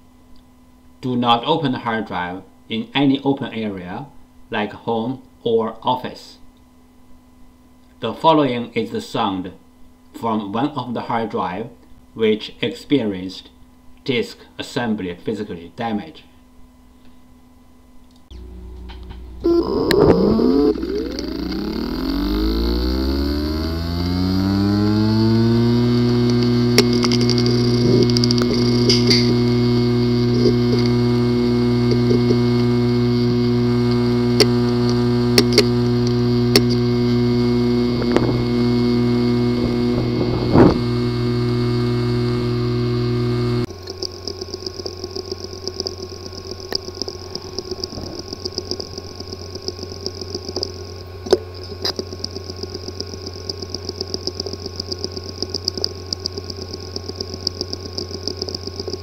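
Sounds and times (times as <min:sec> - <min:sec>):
hard drive humming: 0:16.4 - 0:59.0
hard drive clicking: 0:18.2 - 0:59.0
high steady tone: 0:18.3 - 0:51.0.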